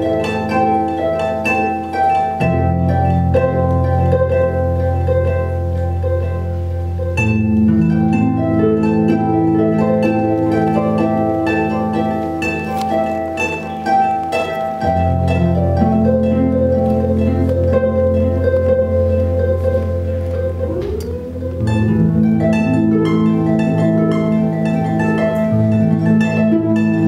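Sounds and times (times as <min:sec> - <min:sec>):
looped plucked harp notes: 0:00.0 - 0:27.0
sustained low drone: 0:18.9 - 0:23.8.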